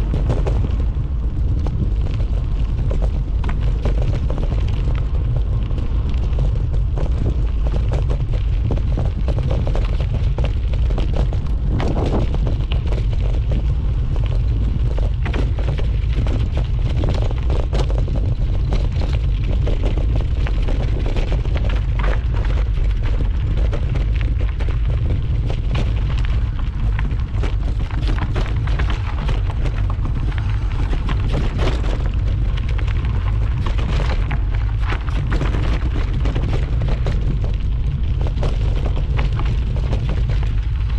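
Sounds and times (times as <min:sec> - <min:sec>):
bike clattering on rough trail: 0:00.0 - 0:40.9
wind buffeting microphone: 0:00.0 - 0:40.9.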